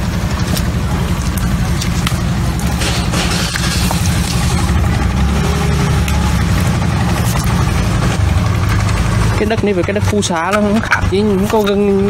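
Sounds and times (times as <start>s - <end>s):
hoe scraping wet clay: 0.0s - 12.0s
motor rumbling: 0.0s - 12.0s.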